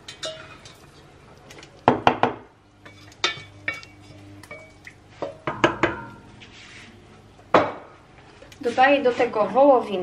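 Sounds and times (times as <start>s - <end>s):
utensils clinking on pot: 0.0s - 1.6s, 2.8s - 6.3s.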